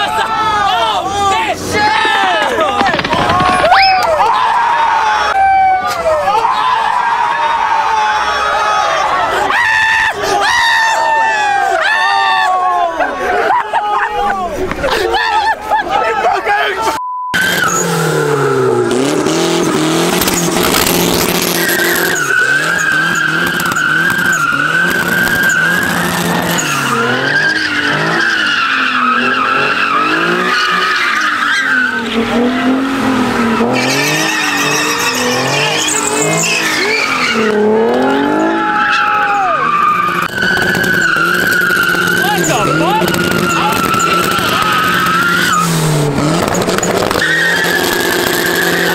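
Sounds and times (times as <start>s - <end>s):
car engines revving: 0.0s - 5.4s, 16.7s - 48.9s
tyres squealing: 0.9s - 6.0s, 19.6s - 48.9s.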